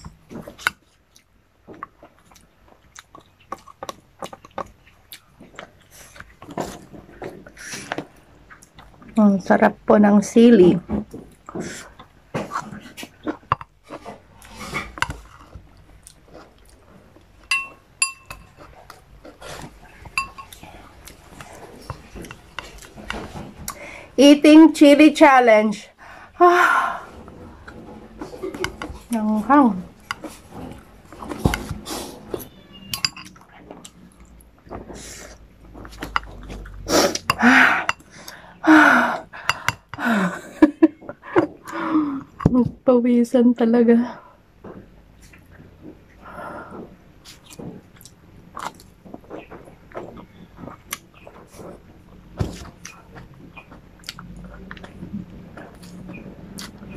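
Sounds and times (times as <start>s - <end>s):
dishes clinking: 17.4s - 18.7s, 20.0s - 20.6s, 32.4s - 33.4s.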